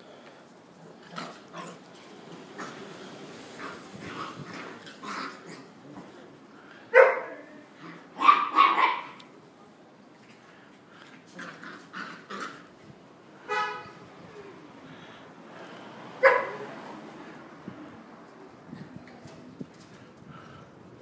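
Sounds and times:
puppies barking: 6.9 - 7.4, 8.2 - 9.2, 16.2 - 16.6.

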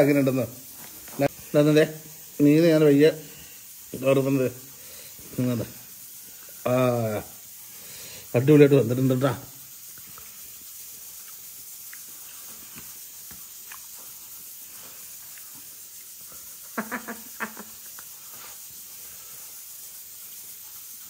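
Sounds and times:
steady hiss: 0.0 - 21.0
chewing: 9.9 - 16.3.

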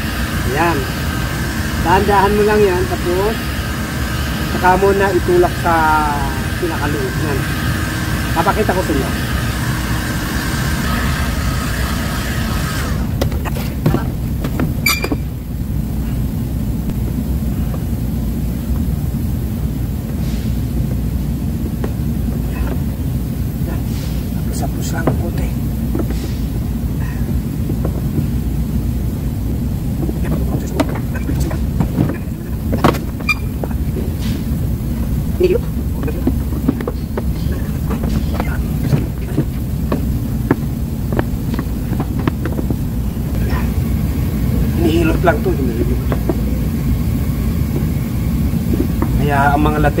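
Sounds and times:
heat gun running: 0.0 - 13.2.

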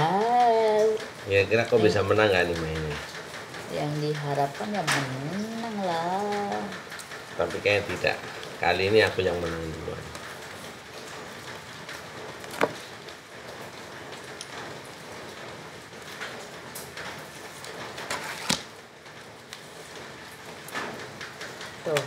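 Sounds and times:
playing cards tapping on wood: 12.5 - 12.8.

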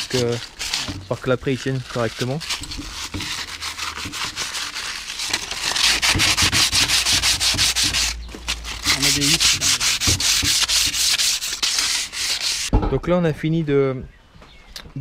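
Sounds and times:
sandpaper scratching on steel: 0.0 - 12.7.

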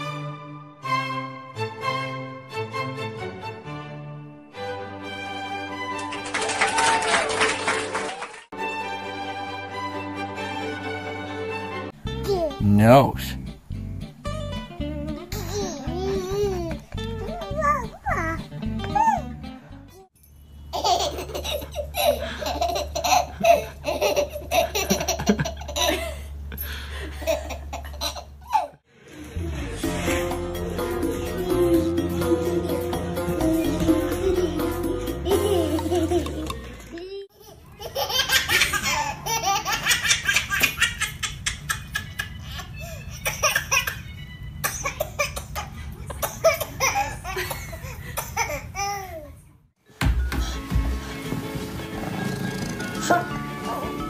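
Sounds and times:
baby giggling and squealing: 15.2 - 19.3
baby laughing: 15.2 - 19.3, 20.7 - 26.2, 27.1 - 28.8, 33.4 - 49.4.

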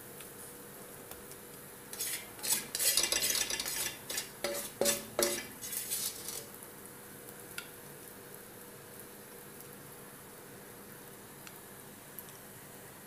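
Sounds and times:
utensils scraping cookware: 1.9 - 6.6.

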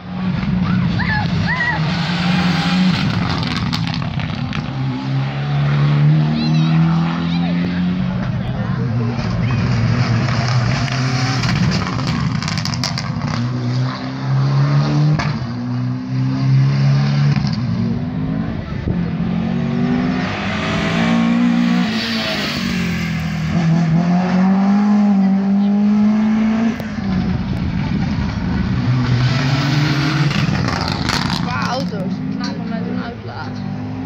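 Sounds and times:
rally car engine accelerating: 0.0 - 34.0.

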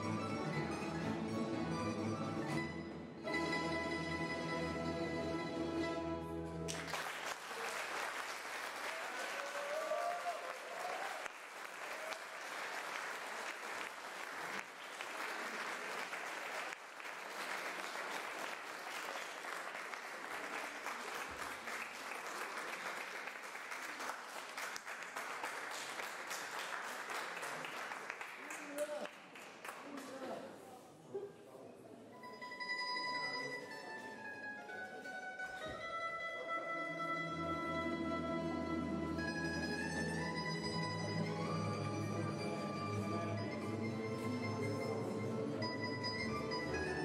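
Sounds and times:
string band music: 0.0 - 6.9, 32.2 - 47.0
audience applause: 6.7 - 30.2.

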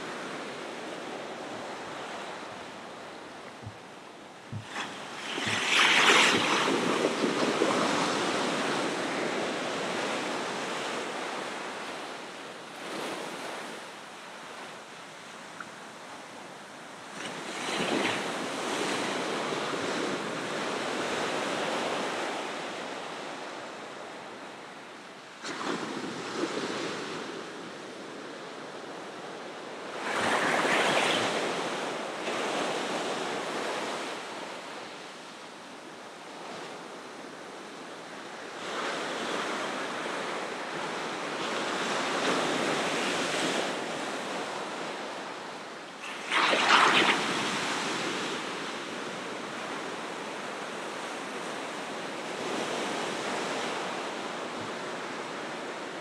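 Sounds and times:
ocean waves breaking: 0.0 - 11.9, 46.0 - 50.4.

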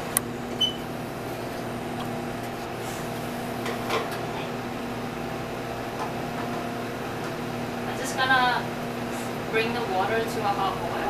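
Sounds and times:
kitchen equipment humming: 0.0 - 11.0.

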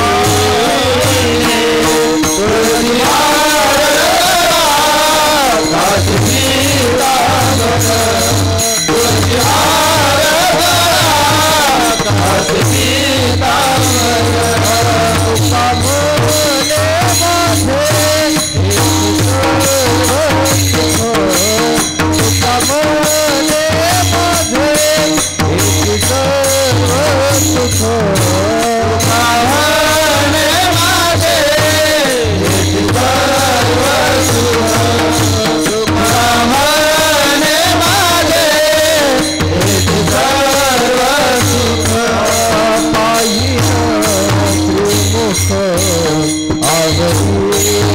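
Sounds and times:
steady drone: 0.0 - 16.8
man singing devotional song: 0.0 - 47.9.

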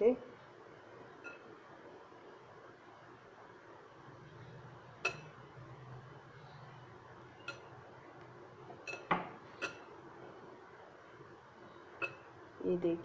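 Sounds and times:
glass bowl clinking: 5.0 - 5.4, 8.8 - 9.9, 12.0 - 12.3.

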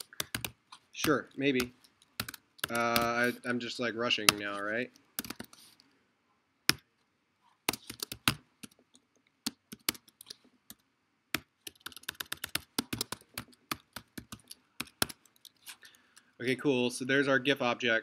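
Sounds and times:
computer keyboard typing: 0.0 - 3.3, 4.2 - 5.6, 7.6 - 16.3.

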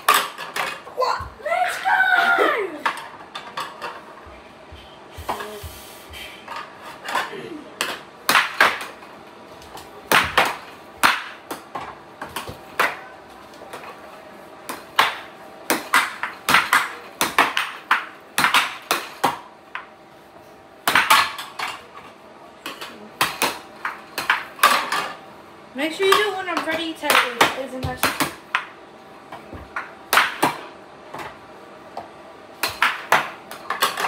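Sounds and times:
air hockey mallets hitting puck: 0.0 - 1.0, 7.8 - 9.0, 10.1 - 13.1, 14.7 - 19.9, 20.8 - 21.9, 26.0 - 28.8, 29.4 - 31.4, 32.0 - 34.0.

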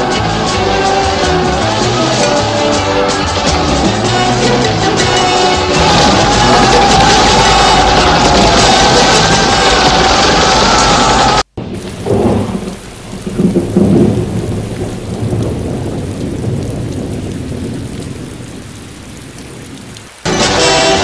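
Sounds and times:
music: 0.0 - 11.4, 20.2 - 21.0
steady rain: 0.0 - 21.0
thunder rumbling: 3.3 - 20.6.

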